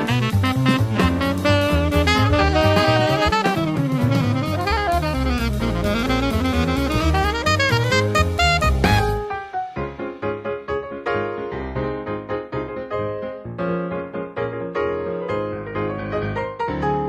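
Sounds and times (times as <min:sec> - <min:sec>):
instrumental music with drum beat: 0:00.0 - 0:10.5.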